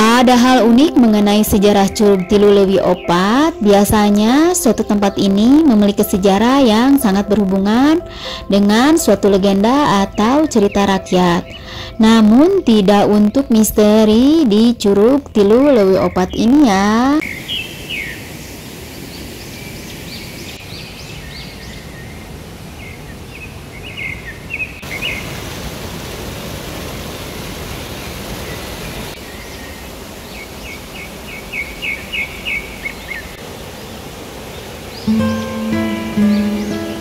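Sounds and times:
acoustic guitar music: 0.0s - 13.3s, 35.0s - 37.0s
songbird chirping: 0.0s - 25.4s, 28.4s - 37.0s
flowing water: 21.6s - 37.0s.

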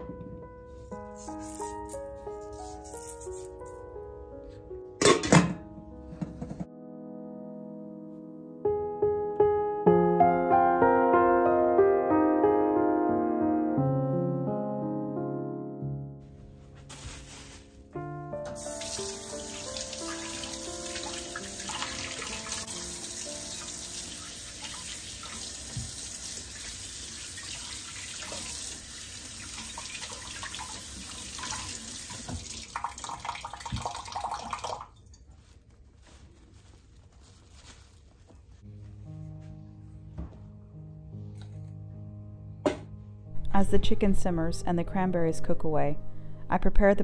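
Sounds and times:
faucet running: 18.5s - 35.0s.

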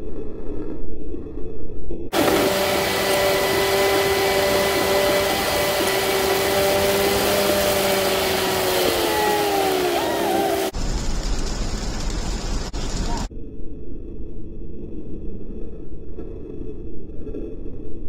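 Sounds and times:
tyres wind and rain rushing: 2.1s - 13.3s.

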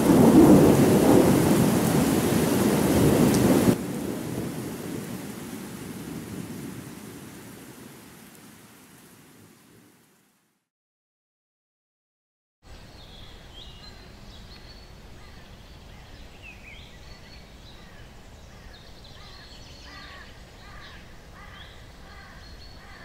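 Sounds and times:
steady low background noise: 12.7s - 23.0s
lower repeated bird calls: 13.0s - 23.0s.

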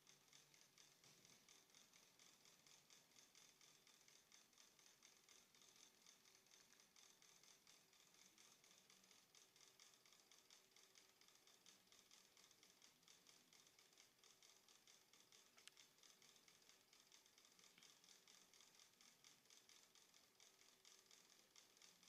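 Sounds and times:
small click: 15.5s - 15.9s.

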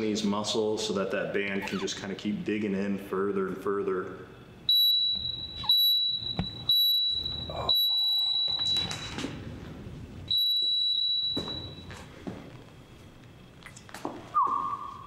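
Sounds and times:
interval timer beeping: 4.7s - 9.1s.

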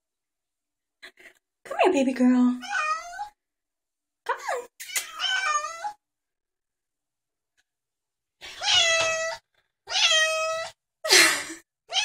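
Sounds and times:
cat meowing: 2.6s - 3.4s, 4.9s - 6.0s, 8.5s - 10.8s.

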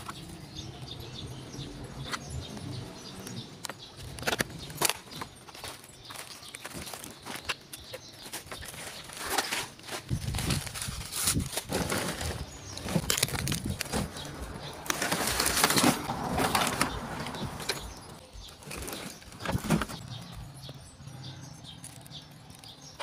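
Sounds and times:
debris crunching and rustling: 2.0s - 23.0s
plastic body knocking and scraping: 3.7s - 20.3s.

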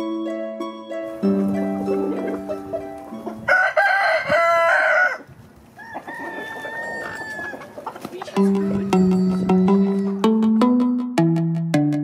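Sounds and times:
plucked harp music: 0.0s - 3.5s, 8.3s - 12.0s
rooster crowing: 3.3s - 7.8s.

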